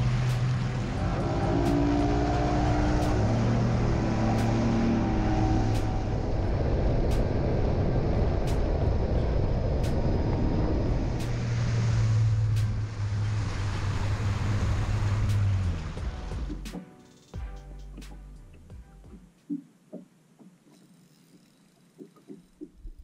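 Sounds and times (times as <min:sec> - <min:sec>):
wind and water rushing: 0:00.0 - 0:16.6.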